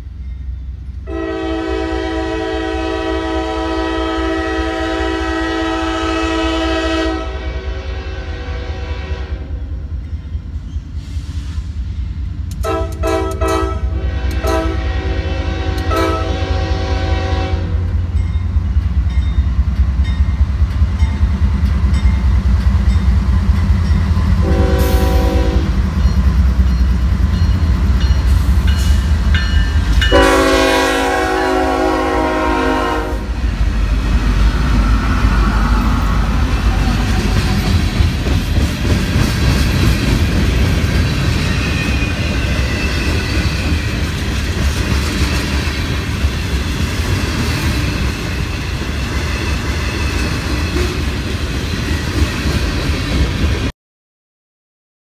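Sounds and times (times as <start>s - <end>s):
rumble of locomotive engines: 0.0s - 53.7s
locomotive air horn blasts: 1.1s - 9.6s, 12.6s - 17.9s, 24.4s - 25.8s, 30.0s - 33.4s.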